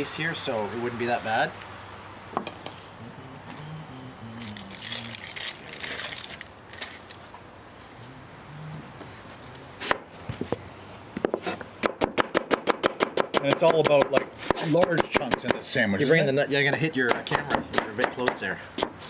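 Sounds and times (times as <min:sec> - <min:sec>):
onion skin crackling: 0:03.3 - 0:07.4.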